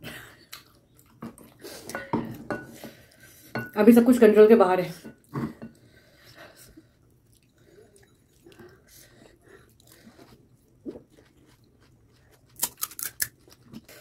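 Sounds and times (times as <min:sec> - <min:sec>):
crunchy food chewing: 0:09.6 - 0:14.0.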